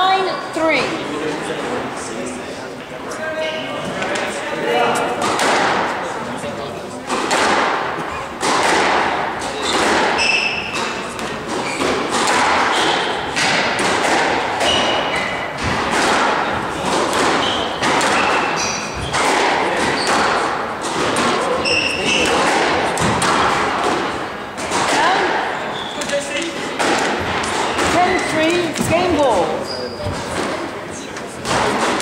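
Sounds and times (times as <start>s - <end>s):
squash ball hits: 5.1s - 6.1s, 7.0s - 30.7s, 31.4s - 32.0s
sneakers squeaking on hardwood: 9.4s - 23.4s, 25.4s - 26.4s, 27.0s - 30.7s.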